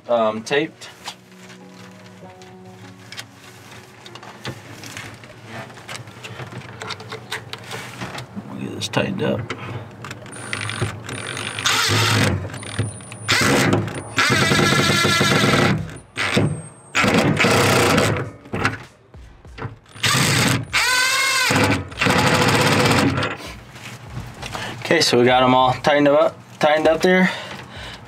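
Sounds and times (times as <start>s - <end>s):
impact driver hammering: 10.6s - 18.3s, 20.0s - 23.4s.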